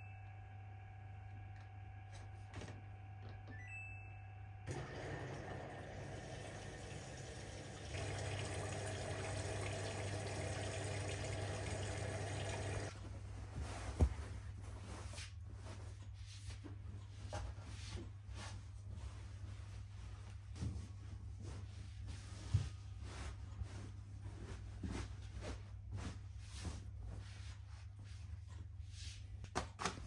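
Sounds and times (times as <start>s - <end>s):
water pouring into washing machine: 4.7s - 12.9s
soft rustling: 12.9s - 29.4s.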